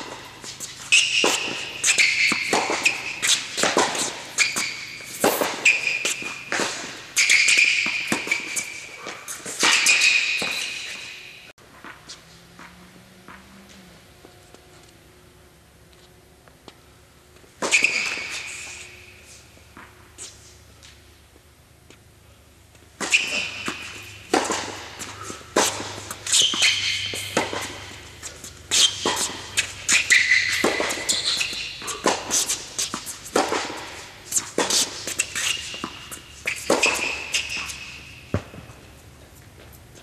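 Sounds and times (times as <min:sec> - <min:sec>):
tennis racket strikes: 0:00.0 - 0:12.0, 0:23.0 - 0:38.7
tennis ball bounces: 0:00.0 - 0:13.5, 0:22.7 - 0:39.0
sneakers squeaking on court: 0:00.0 - 0:14.9, 0:17.4 - 0:20.6, 0:23.0 - 0:40.0.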